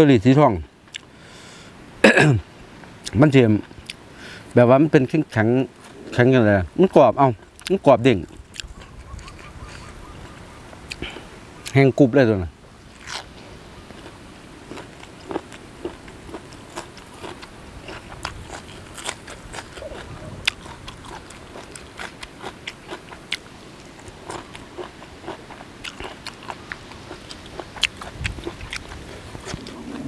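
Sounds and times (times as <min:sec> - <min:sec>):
crunchy wet chewing: 0:07.3 - 0:11.8, 0:12.9 - 0:30.0.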